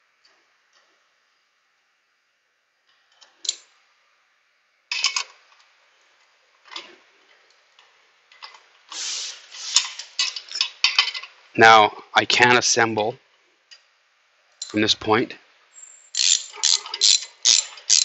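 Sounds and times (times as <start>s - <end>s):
socket ratchet clicking: 15.8s - 18.0s.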